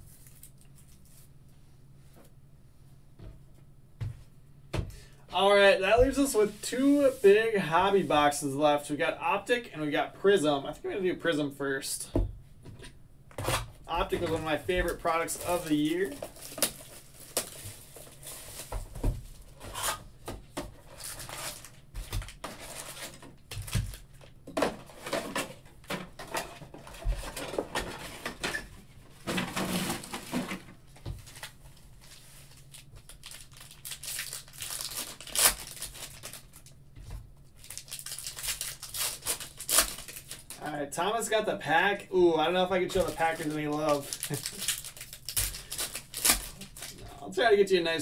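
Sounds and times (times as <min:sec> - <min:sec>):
foil wrappers tearing and crinkling: 0:00.0 - 0:01.3, 0:13.4 - 0:18.8, 0:20.8 - 0:24.2, 0:31.2 - 0:36.8, 0:37.6 - 0:40.6, 0:42.8 - 0:47.0.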